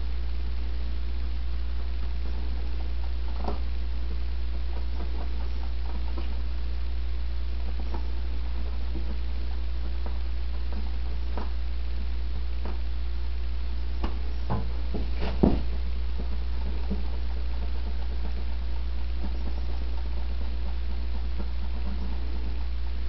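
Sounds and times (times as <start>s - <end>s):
steady low hum: 0.0s - 23.0s
soft knocks: 14.0s - 15.8s.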